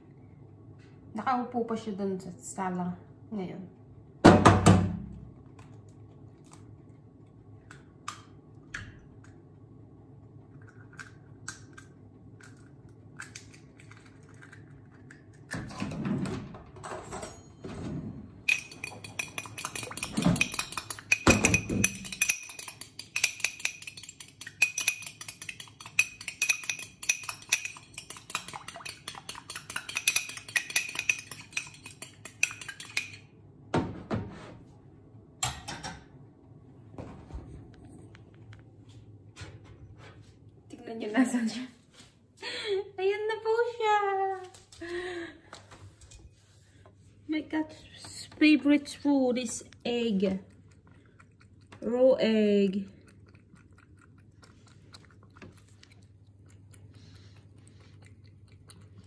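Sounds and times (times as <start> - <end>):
fork beating egg in dish: 18.5 - 33.2.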